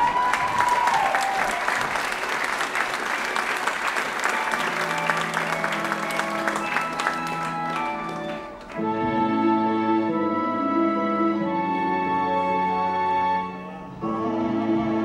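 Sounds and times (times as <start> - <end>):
audience applauding: 0.0 - 8.9
soft sustained backing music: 3.8 - 15.0.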